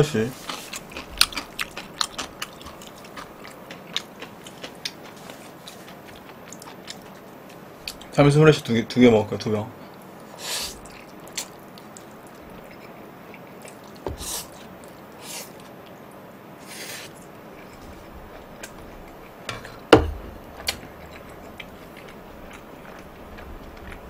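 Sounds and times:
chewing: 0:00.3 - 0:08.1, 0:09.8 - 0:16.0, 0:16.7 - 0:24.0
slurping noodles: 0:14.1 - 0:14.6, 0:16.6 - 0:17.2.

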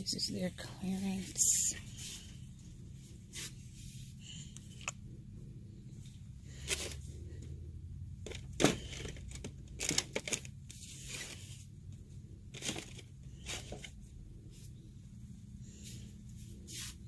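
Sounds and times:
steady low hum: 0:00.0 - 0:17.0
crinkling rustles: 0:08.2 - 0:14.8.

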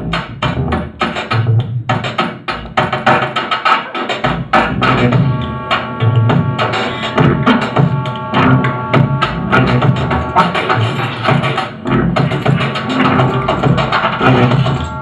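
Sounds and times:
drums and percussion beat: 0:00.0 - 0:15.0
held pitched tone: 0:04.7 - 0:15.0.

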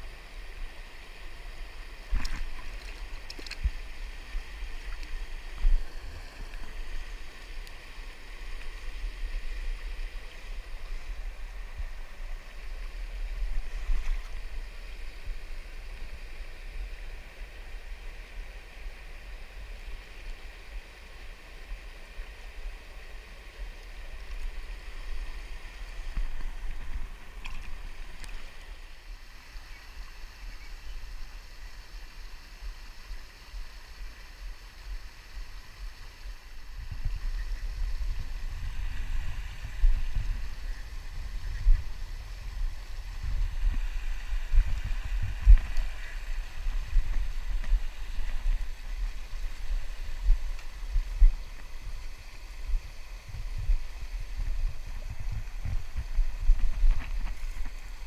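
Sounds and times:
river water rushing: 0:00.0 - 0:30.4
wind buffeting microphone: 0:36.6 - 0:58.0.

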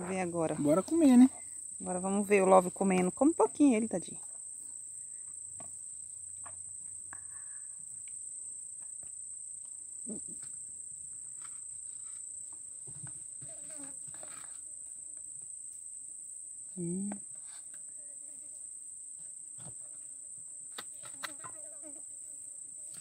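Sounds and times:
insects droning: 0:00.0 - 0:23.0.

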